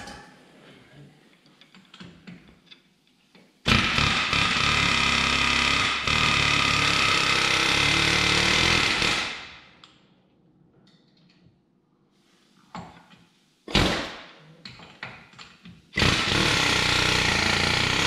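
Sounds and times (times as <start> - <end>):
pneumatic air hammer: 3.7 - 9.7, 13.7 - 14.2, 16.0 - 18.0.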